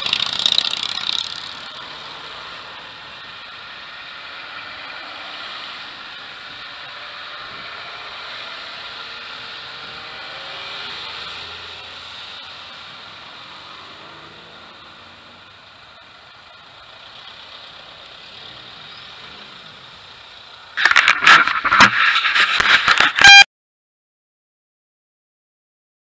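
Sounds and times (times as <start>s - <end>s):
cars driving slowly past: 0.0s - 20.8s
road noise hum: 0.0s - 23.4s
camera handling rubbing and knocking: 20.8s - 23.4s.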